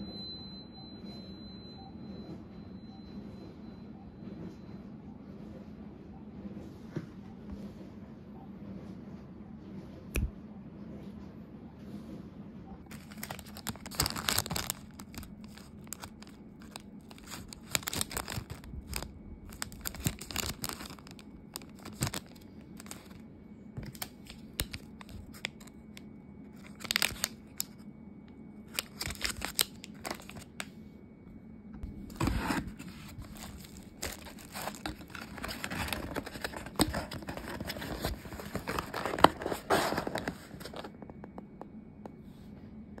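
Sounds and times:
paper rustling and crinkling: 12.9s - 23.2s, 23.8s - 25.8s, 26.6s - 27.8s, 28.7s - 30.6s, 32.0s - 41.0s.

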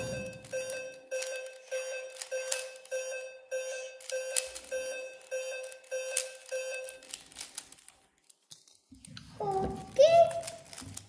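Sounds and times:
short electronic beeps: 0.0s - 7.0s.

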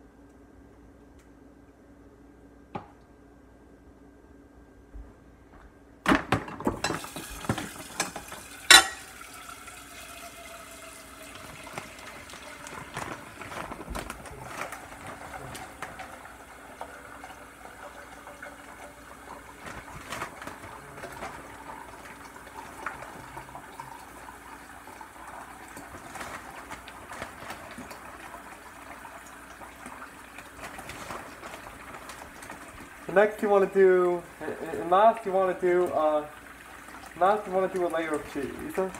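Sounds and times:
metal ladle clanking on pot: 8.0s - 9.1s.

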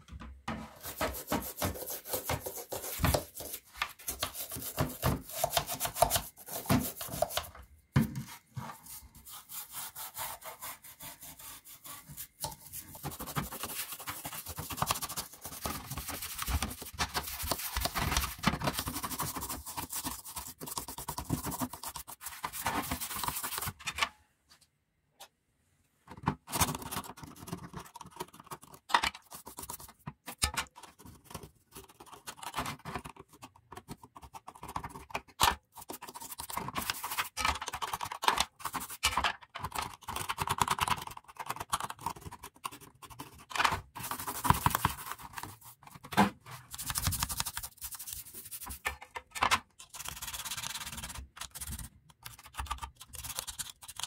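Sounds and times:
toothbrush scrubbing plastic: 0.8s - 7.6s, 8.2s - 23.8s, 26.5s - 46.0s, 46.6s - 49.1s, 49.7s - 54.0s.

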